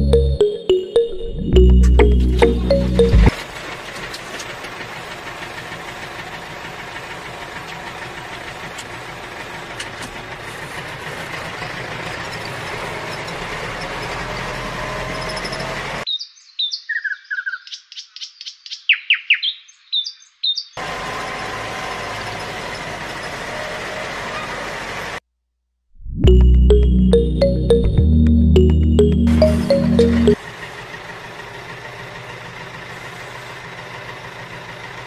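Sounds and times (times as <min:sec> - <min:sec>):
bird chirps: 0:16.1 - 0:20.8.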